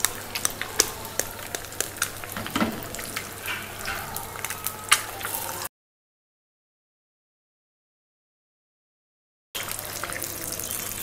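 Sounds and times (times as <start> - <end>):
eggs sizzling in oil: 0.0 - 5.7, 9.6 - 11.0.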